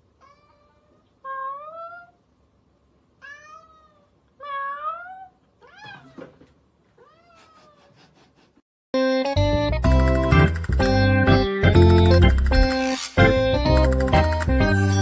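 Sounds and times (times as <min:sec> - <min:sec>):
cat meowing: 0:00.2 - 0:02.2, 0:03.2 - 0:06.3, 0:07.0 - 0:07.8
keyboard music: 0:09.0 - 0:15.0.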